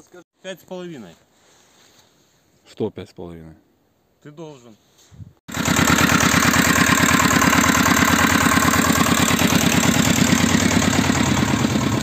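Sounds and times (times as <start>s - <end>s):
small tractor engine puttering: 5.5s - 12.0s.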